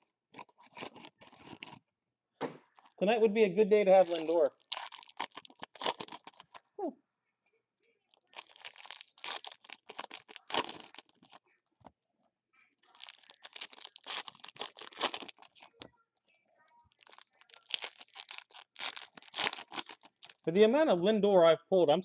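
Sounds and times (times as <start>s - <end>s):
foil wrappers crinkling: 3.9s - 6.6s, 8.1s - 11.4s, 12.8s - 15.8s, 16.9s - 20.5s.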